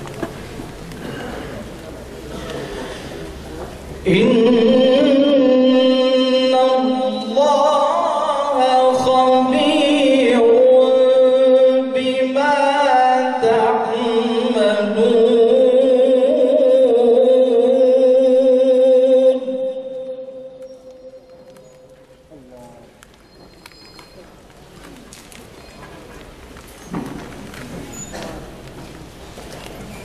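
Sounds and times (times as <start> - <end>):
man reciting melodically: 4.0 - 21.2.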